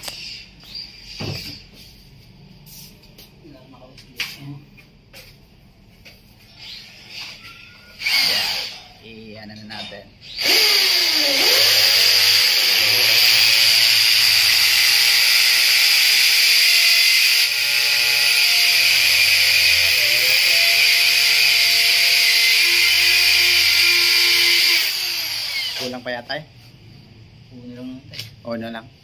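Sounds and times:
electric drill boring into wall: 0:08.0 - 0:08.8, 0:10.2 - 0:26.0.

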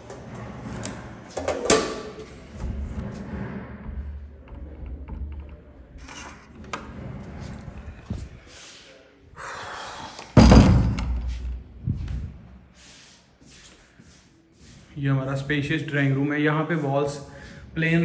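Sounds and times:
door unlatching and opening: 0:00.0 - 0:08.3
loud door thud: 0:10.4 - 0:11.3.

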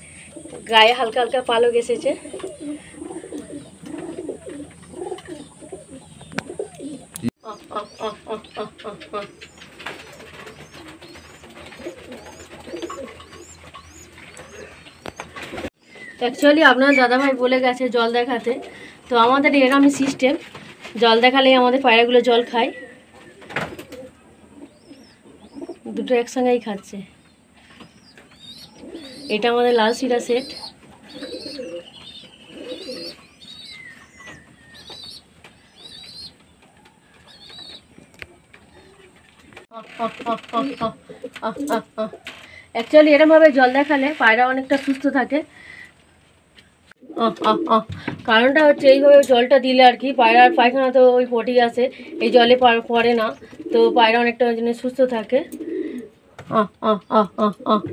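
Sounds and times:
small bird chirping: 0:00.0 - 0:17.2, 0:24.6 - 0:26.0, 0:27.1 - 0:39.1
pigeons cooing: 0:00.0 - 0:17.3, 0:18.0 - 0:21.0, 0:22.0 - 0:26.2, 0:27.3 - 0:42.3, 0:47.0 - 0:49.3, 0:50.2 - 0:54.4, 0:55.0 - 0:57.9.

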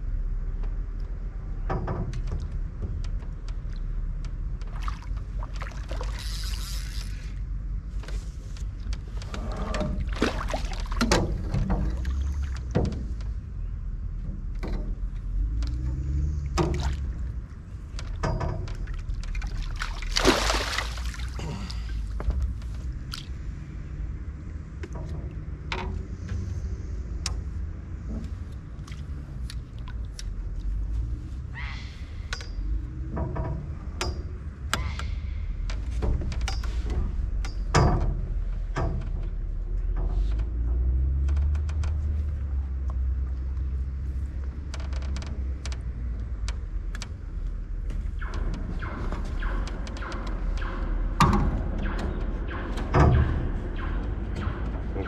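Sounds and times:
steady low rumble: 0:00.0 - 0:55.0
knocks and clatters: 0:00.6 - 0:06.2, 0:07.0 - 0:21.2, 0:22.1 - 0:31.2, 0:32.3 - 0:55.0
fish splashing in water: 0:19.3 - 0:21.4.

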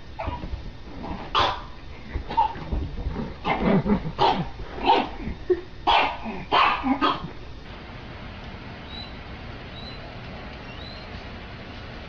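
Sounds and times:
dog barking: 0:01.4 - 0:01.7, 0:04.2 - 0:05.2, 0:05.9 - 0:07.3.

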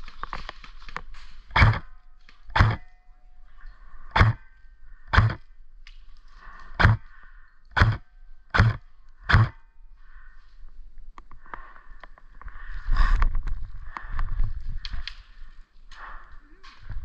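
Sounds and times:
airsoft rifle shots: 0:01.5 - 0:01.9, 0:02.5 - 0:02.9, 0:04.2 - 0:04.4, 0:05.1 - 0:05.4, 0:06.8 - 0:07.0, 0:07.8 - 0:09.6.

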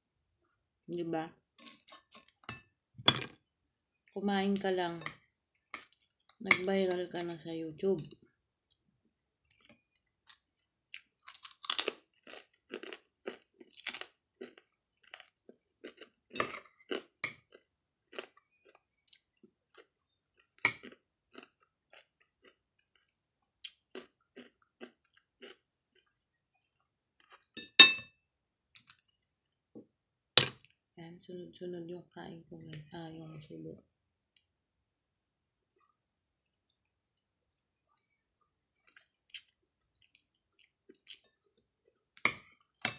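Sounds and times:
person chewing food: 0:05.2 - 0:06.4, 0:08.2 - 0:27.8, 0:28.7 - 0:29.6, 0:35.7 - 0:42.9
cutlery clinking on plate: 0:27.6 - 0:28.1.

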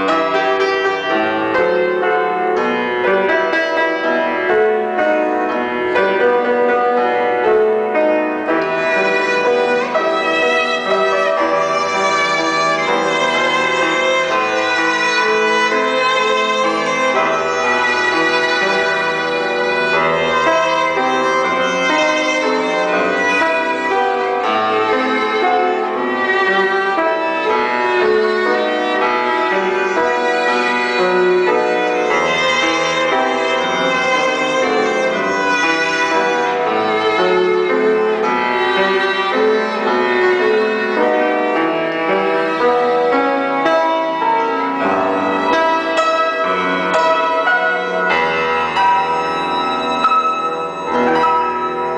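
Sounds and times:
violin melody: 0:00.0 - 0:51.9.

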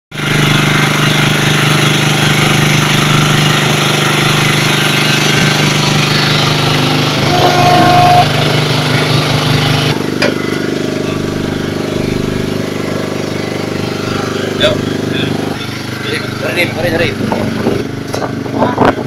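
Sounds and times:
boat engine running: 0:00.1 - 0:19.0
brief high tone: 0:07.2 - 0:08.4.

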